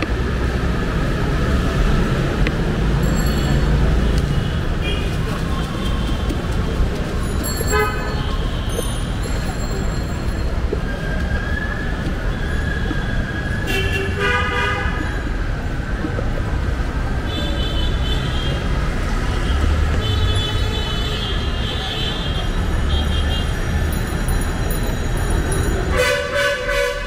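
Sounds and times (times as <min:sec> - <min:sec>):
passing vehicles: 0:00.0 - 0:27.0
car horns: 0:07.6 - 0:08.8, 0:13.7 - 0:15.0, 0:25.9 - 0:27.0.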